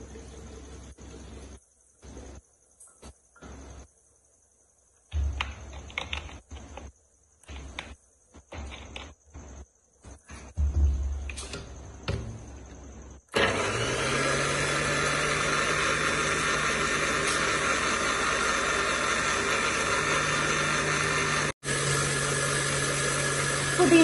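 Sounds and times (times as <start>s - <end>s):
electric blender running: 13.3s - 24.0s.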